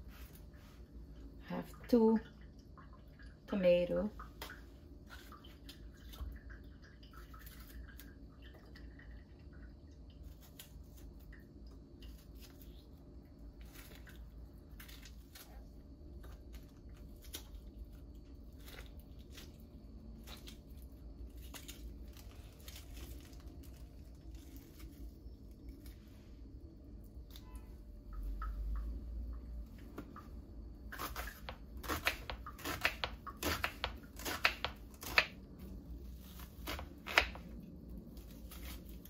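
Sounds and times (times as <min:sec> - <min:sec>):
low steady hum: 0:00.0 - 0:39.0
knife slicing tomato: 0:30.9 - 0:35.5, 0:36.2 - 0:37.5.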